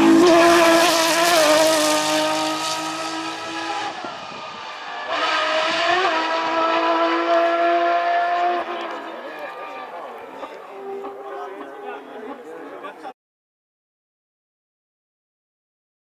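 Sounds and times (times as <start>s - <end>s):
rally car engine at high revs: 0.0s - 11.9s
rally car passing close: 0.0s - 12.3s.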